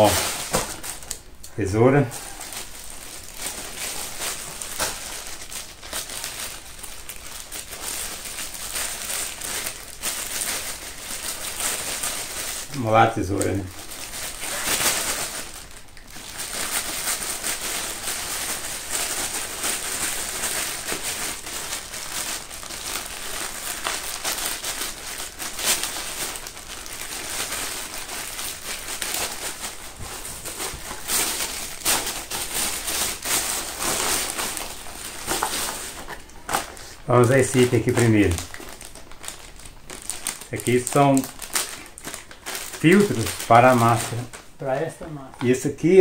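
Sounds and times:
plastic bag crinkling: 0.0 - 46.0.

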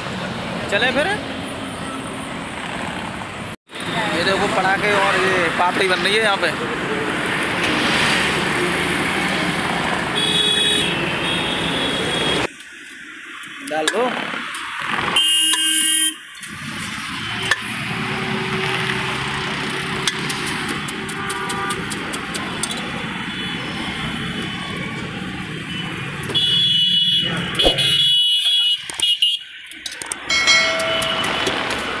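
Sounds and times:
car horns honking: 10.2 - 12.5, 15.2 - 16.2, 25.7 - 29.4
vehicle engines running: 16.5 - 26.4, 29.7 - 32.0.

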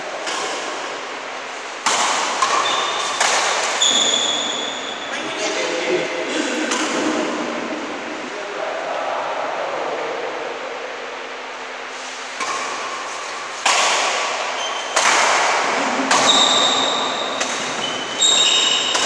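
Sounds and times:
rackets hitting shuttlecock: 0.0 - 1.1, 1.8 - 5.0, 6.6 - 7.1, 12.3 - 19.0
ringing echo in hall: 0.0 - 19.0.

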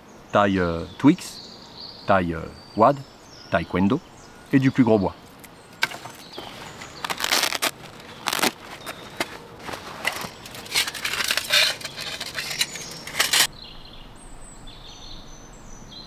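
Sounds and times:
gear rustling over dry leaves: 5.8 - 13.5.

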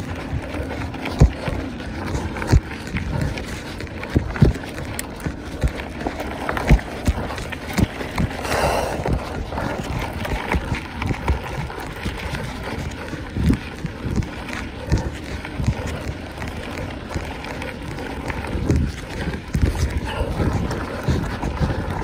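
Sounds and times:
bike knocking and rattling: 0.0 - 22.0
bike tyre noise on rough ground: 0.0 - 22.0
wind buffeting microphone: 0.0 - 22.0.

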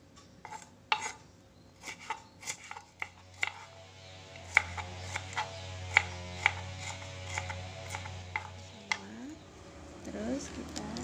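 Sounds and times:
knife chopping on wooden board: 0.5 - 1.2, 1.8 - 3.7, 4.4 - 9.0.

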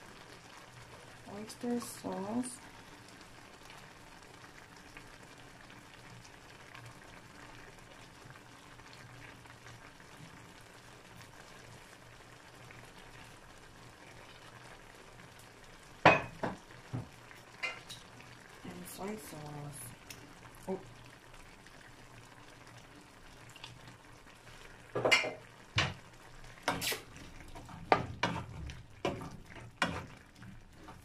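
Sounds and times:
vegetables sizzling in a frying pan: 0.0 - 31.0.

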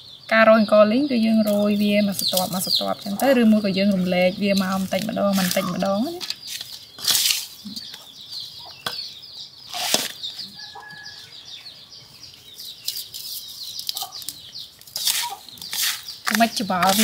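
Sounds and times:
rapid high-pitched chirping: 0.0 - 17.0
hands mixing fish in a bowl: 14.8 - 17.0.

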